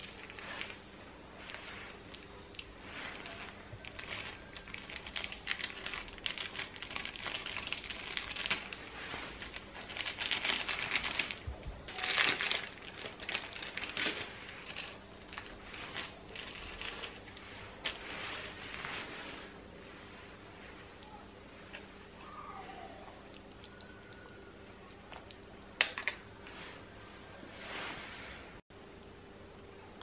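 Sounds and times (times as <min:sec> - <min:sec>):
plastic packet crinkling: 0:00.0 - 0:18.0.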